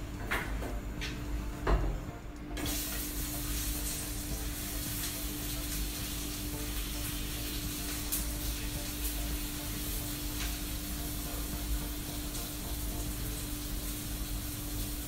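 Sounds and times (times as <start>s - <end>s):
oil sizzling in a frying pan: 2.6s - 15.0s.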